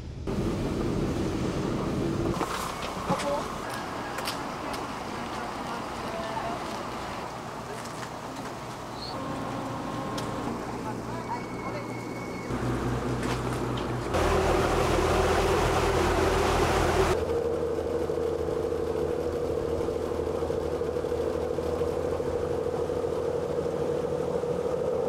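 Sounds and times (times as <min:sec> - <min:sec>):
boat engine droning: 0:00.2 - 0:25.0
rushing water: 0:14.1 - 0:17.2.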